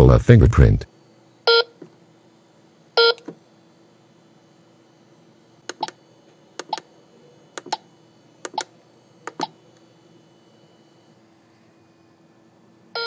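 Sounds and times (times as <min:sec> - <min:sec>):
keypad button clicks: 0:05.7 - 0:06.0, 0:06.6 - 0:06.8, 0:08.4 - 0:09.6.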